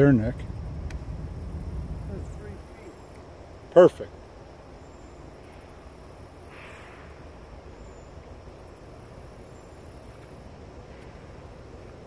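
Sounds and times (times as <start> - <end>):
steady low hiss: 0.0 - 12.0.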